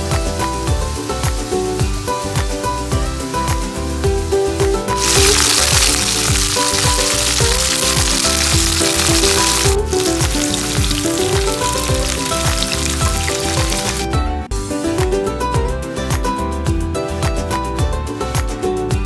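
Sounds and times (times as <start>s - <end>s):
background music with steady beat: 0.0s - 19.0s
okra sizzling in hot oil: 0.3s - 14.1s.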